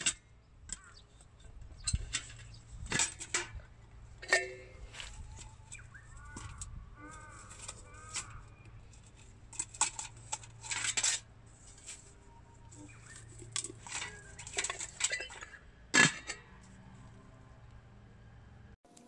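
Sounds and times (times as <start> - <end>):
metal pot clanking: 1.8 - 8.4, 9.1 - 11.2, 12.7 - 16.6.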